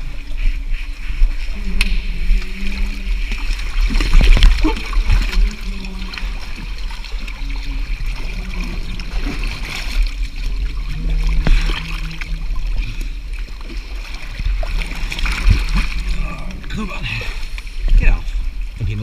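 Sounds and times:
low rumble: 0.0 - 19.0
stream water splashing and gurgling: 0.0 - 19.0.

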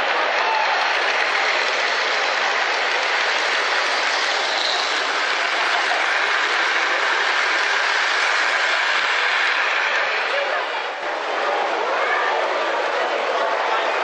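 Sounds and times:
model train wheels rattling on track: 0.6 - 11.1.

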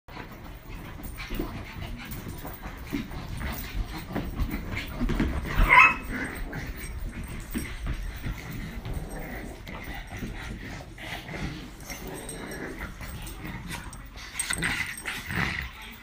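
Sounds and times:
small dogs scuffling: 0.1 - 16.0
dog yipping: 5.5 - 6.1.

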